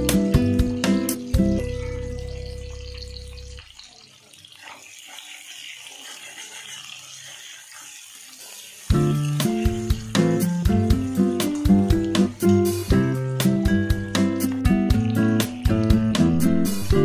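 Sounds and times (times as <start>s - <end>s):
guitar music: 0.0s - 3.6s, 8.9s - 17.0s
onions sizzling in oil: 0.0s - 17.0s.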